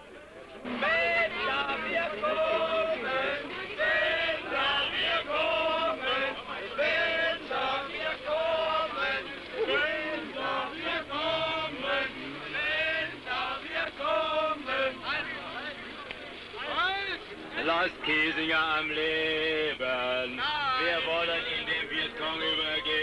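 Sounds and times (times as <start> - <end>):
men singing chant-like phrases: 0.7 - 15.6.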